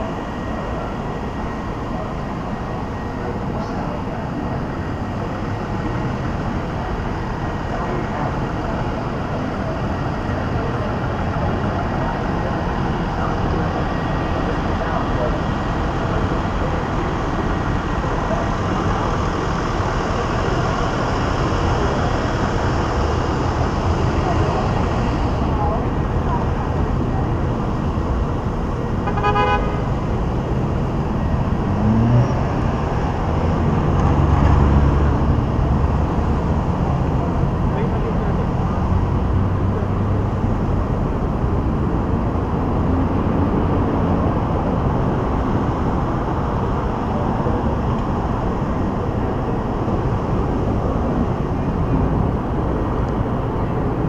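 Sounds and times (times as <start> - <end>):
cars driving past: 0.0 - 54.0
traffic rumble: 0.0 - 54.0
car horn toot: 29.0 - 29.9.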